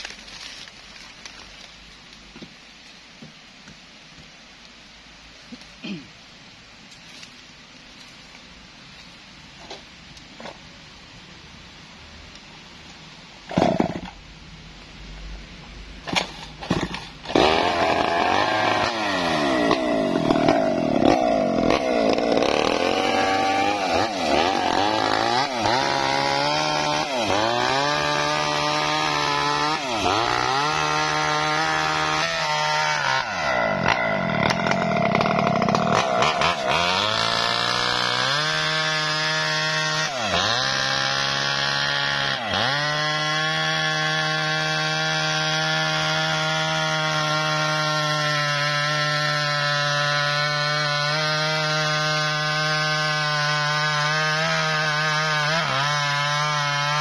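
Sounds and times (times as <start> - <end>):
chainsaw cutting wood: 13.5 - 14.2, 16.0 - 57.0.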